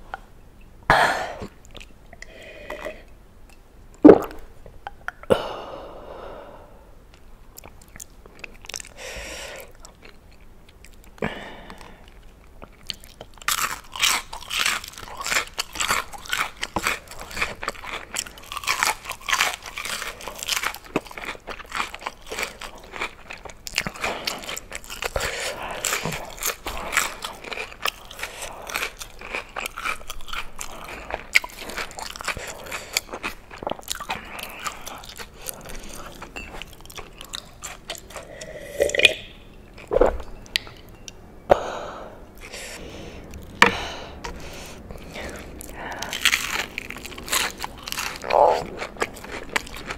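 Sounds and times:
chewing crunchy fried food: 7.5s - 9.0s, 9.6s - 39.1s, 44.2s - 49.9s.

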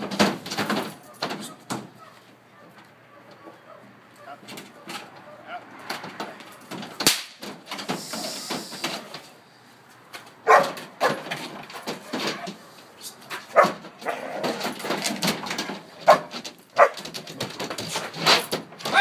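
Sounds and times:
dog barking: 1.4s - 5.7s, 10.5s - 11.2s, 16.1s - 17.0s
sharp crack: 6.2s - 8.9s.

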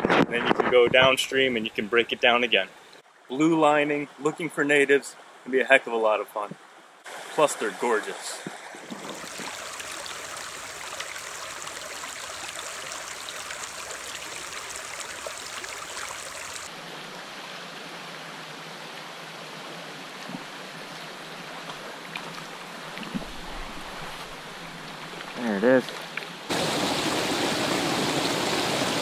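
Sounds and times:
stream rushing over stones: 7.0s - 17.5s, 20.4s - 29.0s.

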